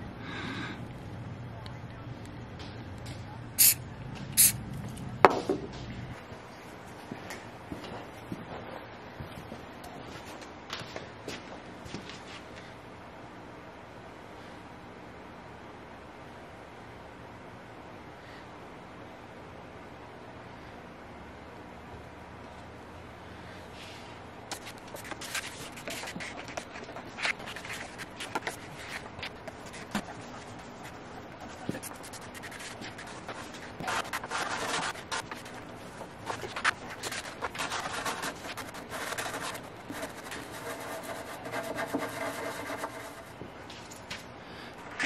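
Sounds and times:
rubbing and scraping: 24.5s - 43.4s.

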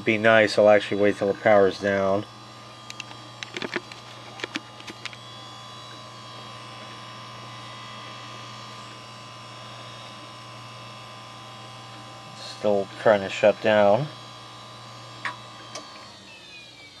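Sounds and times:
computer fans humming: 0.0s - 14.7s
cables and plugs clicking: 2.8s - 5.2s.

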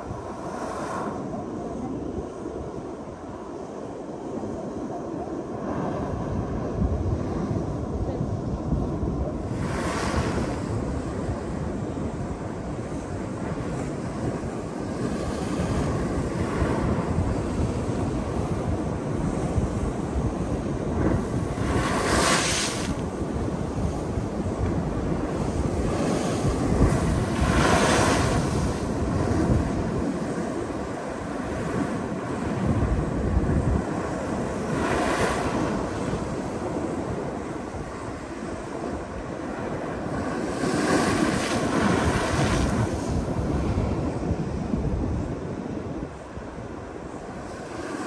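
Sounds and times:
surf washing: 0.0s - 48.0s
waves crashing on rock: 20.9s - 32.2s.

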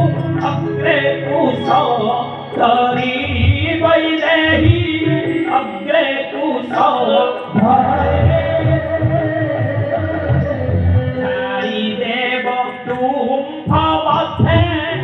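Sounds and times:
instrumental accompaniment: 0.0s - 15.0s
person singing: 0.0s - 15.0s
strong low beats: 7.6s - 11.2s.

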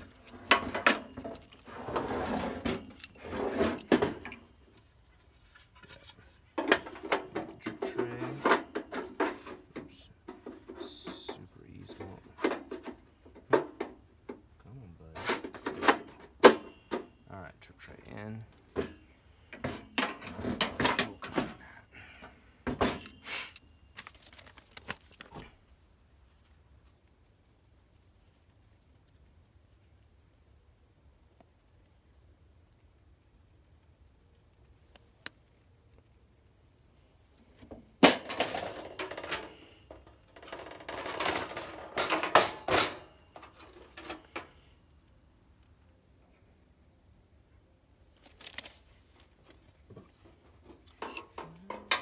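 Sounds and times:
metal parts clinking and rattling: 0.0s - 4.5s, 19.6s - 21.6s, 22.7s - 25.4s, 38.0s - 44.5s, 50.8s - 52.0s.

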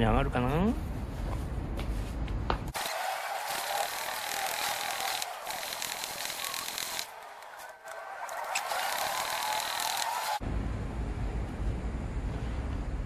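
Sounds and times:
floor pump strokes sped up: 2.7s - 10.4s.

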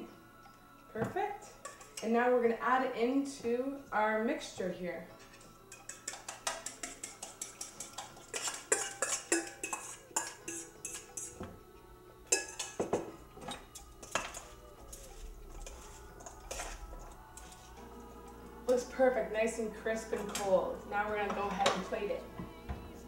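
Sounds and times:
tongs clanking in bowl: 1.5s - 2.1s, 5.2s - 18.9s
fork scraping metal bowl: 1.6s - 2.1s, 5.2s - 11.4s, 12.3s - 12.8s, 13.4s - 17.8s.

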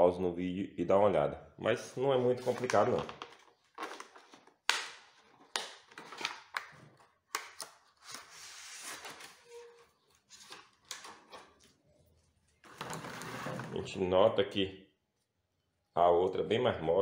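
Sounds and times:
plastic packaging rustling: 2.2s - 11.8s.

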